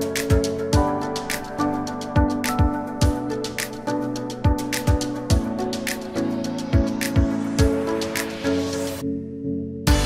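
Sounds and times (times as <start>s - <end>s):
background music with a beat: 0.0s - 9.2s.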